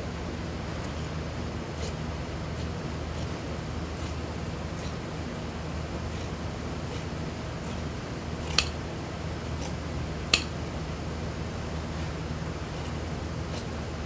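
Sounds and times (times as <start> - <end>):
shears cutting fabric: 1.7 - 5.1, 6.0 - 8.7
metallic snaps of shear blades: 8.5 - 8.8, 9.6 - 10.6.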